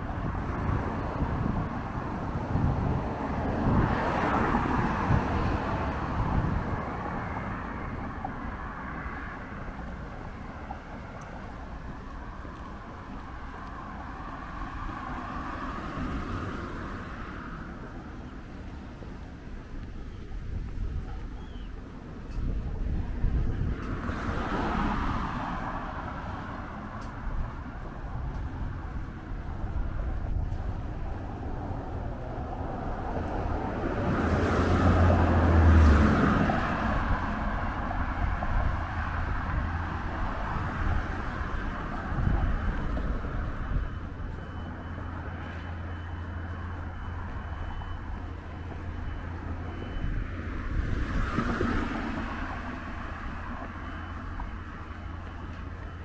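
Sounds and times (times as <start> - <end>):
low rumble of passing cars: 0.0 - 56.0
vehicle passing close: 22.9 - 54.9.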